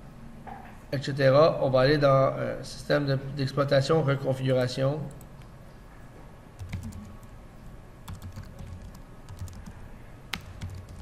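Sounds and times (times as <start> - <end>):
typing on computer keyboard: 6.6 - 7.3, 8.0 - 11.0.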